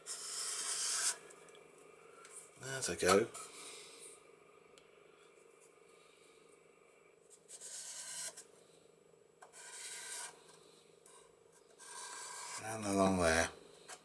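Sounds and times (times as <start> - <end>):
faint steady hum: 0.0 - 14.0
marker scratching on paper: 0.1 - 1.2, 7.5 - 8.4, 9.5 - 10.4, 11.8 - 12.7.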